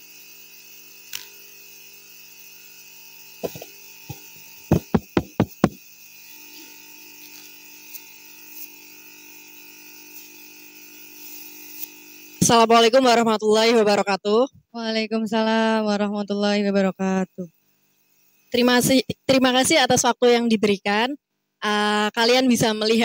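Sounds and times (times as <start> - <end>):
microphone handling knocks: 3.4 - 5.8
microphone tapping thumps: 3.4 - 5.8
sound system hum: 3.4 - 5.8.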